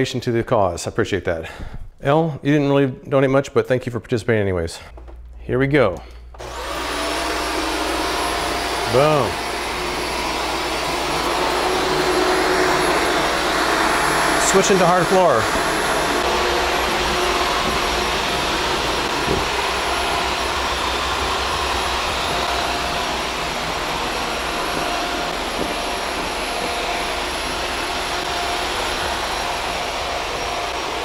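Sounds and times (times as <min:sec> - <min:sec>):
vacuum cleaner running on tile: 0:06.4 - 0:31.0.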